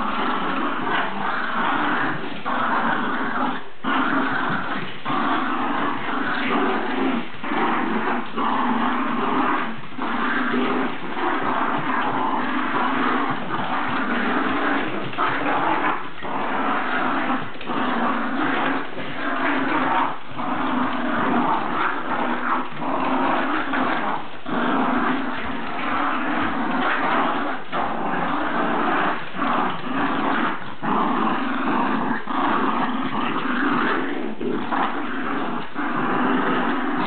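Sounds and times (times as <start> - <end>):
dogs growling: 0.0 - 37.0.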